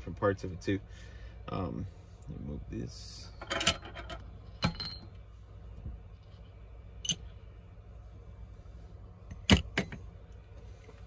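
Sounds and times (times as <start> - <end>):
metal tools clinking on scale: 3.4 - 5.1.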